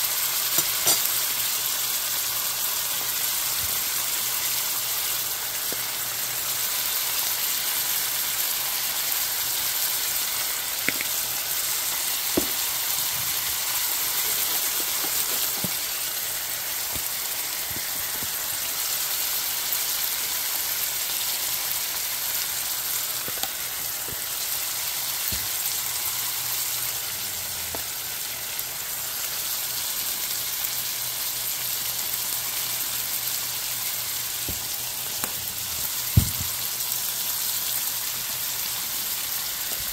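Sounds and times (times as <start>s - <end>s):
vegetables sizzling in a frying pan: 0.0s - 39.9s.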